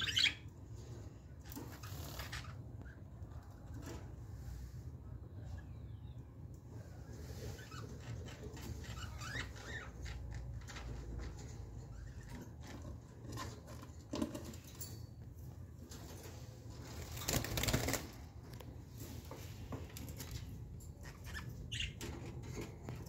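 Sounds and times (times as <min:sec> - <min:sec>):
budgerigars moving in a cage: 0:00.0 - 0:05.7, 0:06.5 - 0:23.0
wings flapping: 0:16.9 - 0:18.3.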